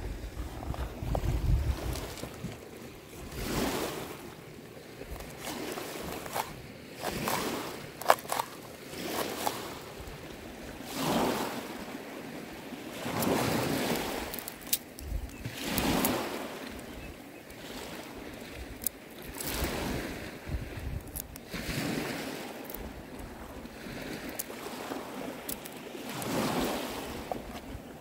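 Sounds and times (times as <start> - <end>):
waves on a pebble shore: 0.0 - 28.0
knife chopping on wood: 6.3 - 9.6.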